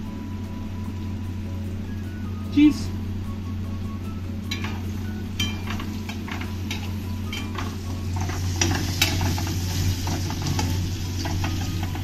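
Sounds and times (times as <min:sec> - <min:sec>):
steady low hum: 0:00.0 - 0:12.0
food frying sizzle: 0:04.4 - 0:12.0
spatula scraping metal pan: 0:05.7 - 0:12.0.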